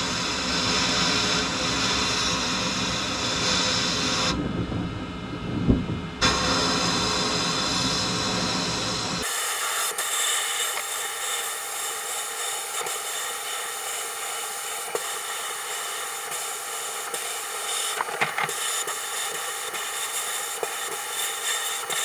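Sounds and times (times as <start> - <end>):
sandblast gun hissing: 6.2 - 22.0.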